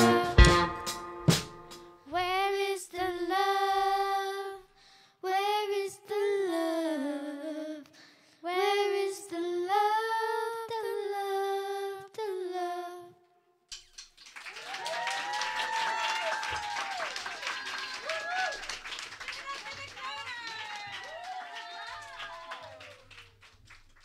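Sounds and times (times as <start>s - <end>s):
girl singing unaccompanied: 0.0s - 0.6s, 2.1s - 13.2s
singer breathing: 4.7s - 5.2s, 7.9s - 8.4s.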